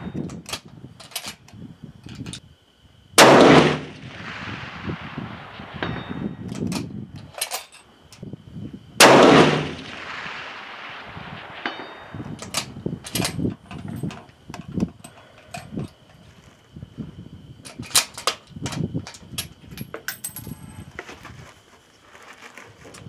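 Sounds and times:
rifle shot: 3.2s - 6.4s, 9.0s - 12.2s
faint ring of steel target: 5.7s - 6.4s.

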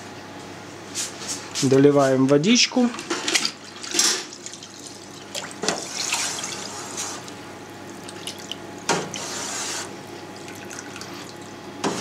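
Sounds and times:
water pouring and splashing: 2.9s - 8.9s, 10.4s - 11.5s.

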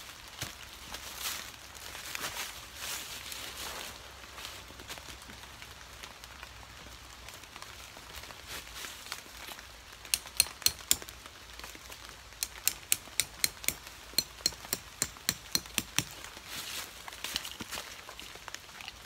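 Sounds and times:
light rain patter: 0.0s - 12.7s, 15.4s - 19.0s
tent stake hammered knocks: 10.1s - 11.1s, 12.4s - 16.3s.

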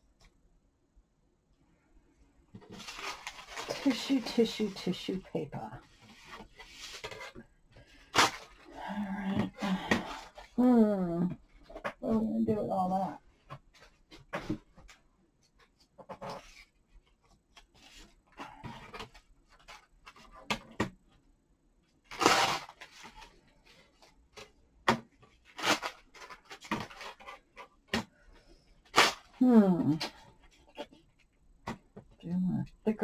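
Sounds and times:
paper rustling: 2.6s - 8.7s.

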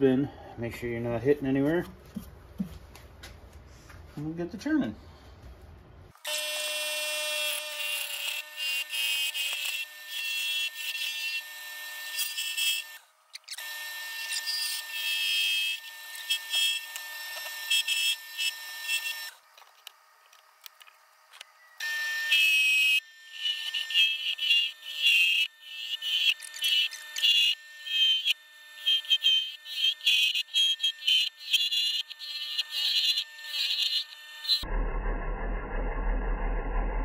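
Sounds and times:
tool cutting wood hiss: 6.2s - 34.6s.

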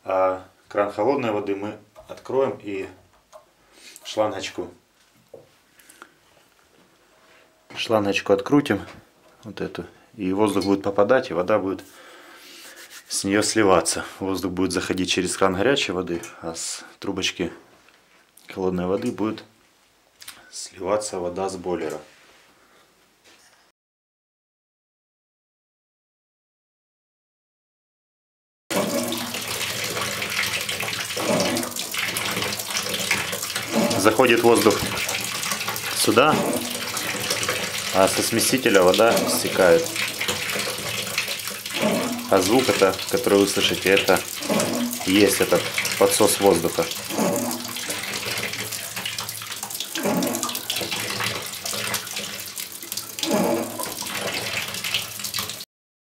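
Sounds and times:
water running from bath spout: 28.7s - 55.7s
air sucked into tank: 53.2s - 53.9s.

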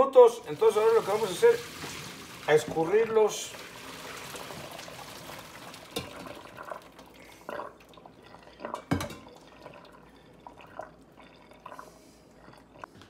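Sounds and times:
water dripping and trickling: 0.4s - 12.9s
short knocks and splashes: 5.8s - 6.4s.

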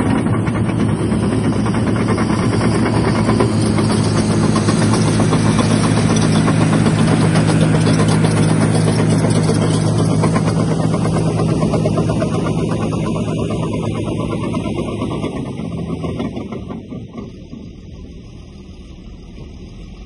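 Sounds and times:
diesel engine running: 0.0s - 20.0s
steel tracks clattering: 0.0s - 20.0s.

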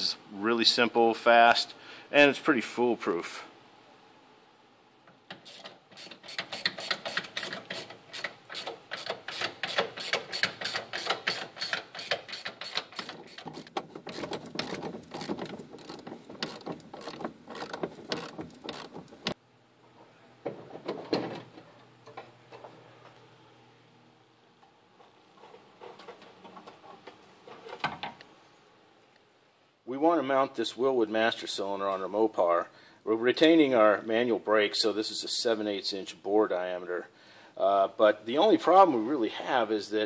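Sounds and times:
scattered clicks and knocks: 5.1s - 19.4s
ratchet wrench clicking: 5.4s - 19.0s.

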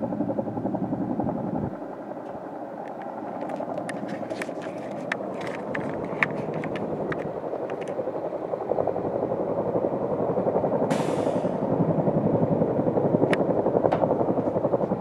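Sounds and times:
helicopter rotors beating: 0.0s - 15.0s
hiss: 10.9s - 11.7s.

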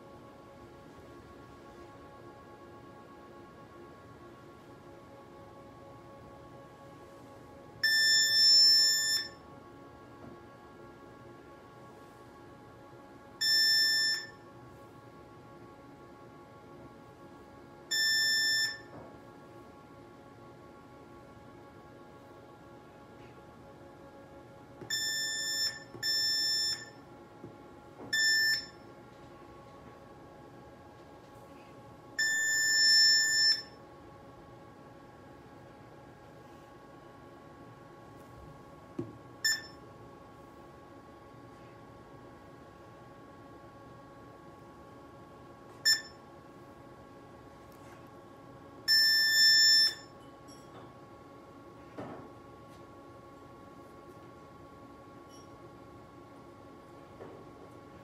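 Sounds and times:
faint steady hum: 0.0s - 58.0s
long electronic beep: 7.8s - 9.4s, 13.4s - 14.4s, 17.9s - 19.0s, 24.9s - 27.0s, 28.1s - 28.9s, 32.2s - 33.8s, 39.4s - 39.8s, 45.9s - 46.2s, 48.9s - 50.1s
short electronic beep: 28.1s - 28.8s, 39.4s - 39.8s, 45.8s - 46.2s.

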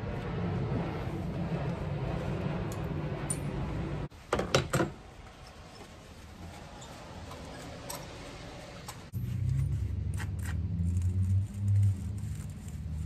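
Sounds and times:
steady low hum: 0.0s - 4.1s.

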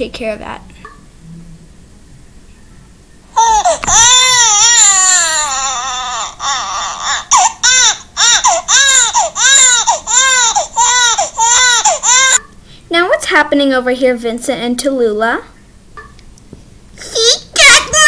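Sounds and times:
baby crying: 3.4s - 12.4s.

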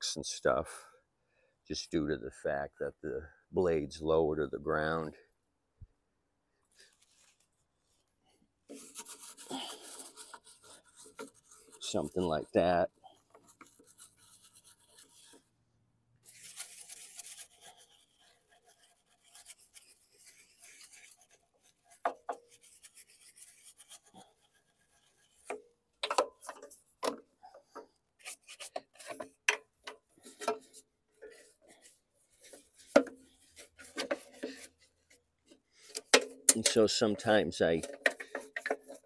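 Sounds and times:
stiff brush scrubbing plastic: 8.7s - 15.6s, 16.2s - 39.0s
sharp clicks and knocks: 25.5s - 27.9s, 35.5s - 37.0s.

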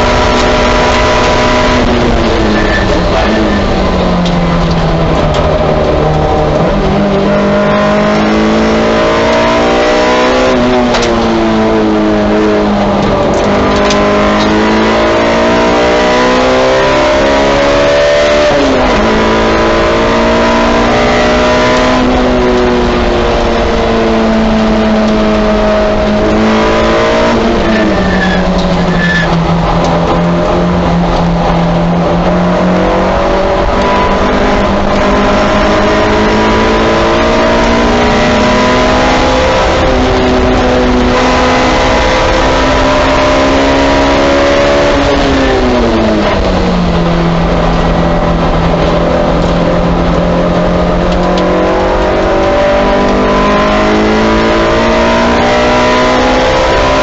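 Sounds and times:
race car engine revving: 0.0s - 57.0s
tyre and wind noise: 0.0s - 57.0s.

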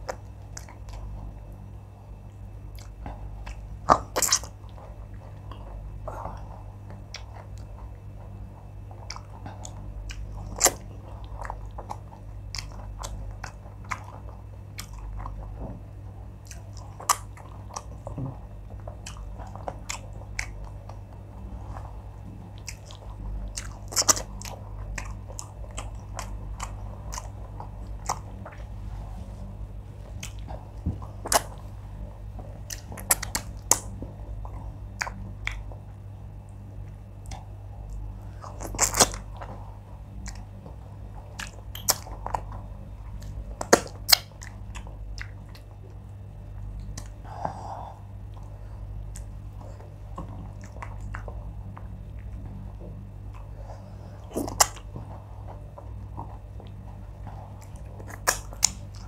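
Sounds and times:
close chewing with wet smacking: 0.0s - 28.8s, 29.4s - 47.3s, 48.1s - 59.0s
lip and mouth clicks: 19.0s - 20.8s, 32.7s - 34.0s, 41.3s - 42.4s, 54.3s - 54.9s, 57.6s - 59.0s.

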